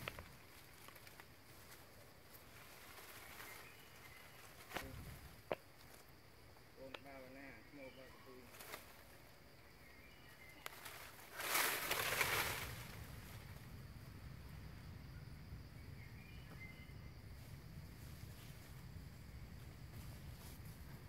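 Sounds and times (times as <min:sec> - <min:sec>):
dry leaves rustling: 0:00.0 - 0:06.2, 0:08.4 - 0:09.3, 0:10.4 - 0:13.8
insect drone: 0:00.0 - 0:21.0
bird chirps: 0:03.1 - 0:04.9, 0:07.1 - 0:11.1, 0:15.1 - 0:17.2.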